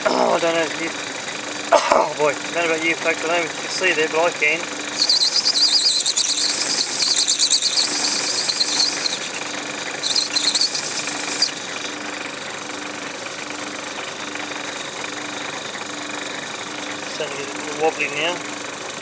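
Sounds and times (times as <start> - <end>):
lathe humming: 4.4 - 19.0
cutting tool squealing: 4.9 - 12.2.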